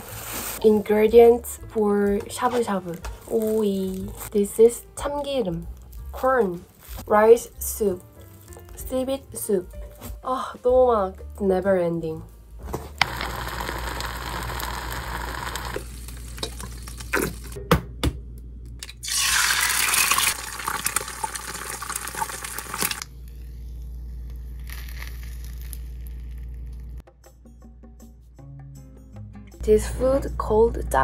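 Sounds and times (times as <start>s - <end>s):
egg sizzling in hot oil: 13.0s - 17.6s, 19.0s - 23.1s.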